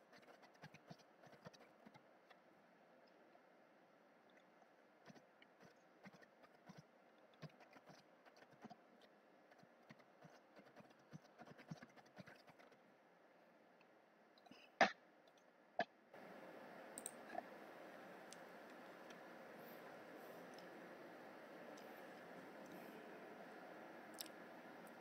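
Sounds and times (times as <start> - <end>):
sharp keyboard clicks: 9.6 - 12.8
steady low hiss: 16.2 - 25.0.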